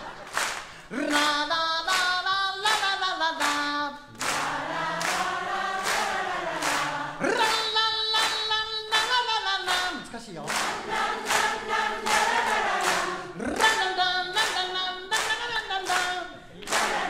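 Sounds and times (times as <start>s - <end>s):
handclaps on the beat: 0.0s - 17.0s
audience singing along: 4.1s - 7.6s, 10.6s - 17.0s.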